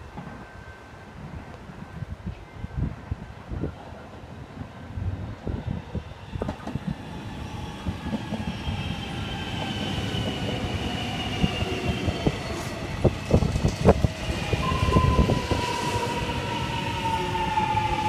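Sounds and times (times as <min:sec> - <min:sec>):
electric train rumble: 0:04.4 - 0:18.0.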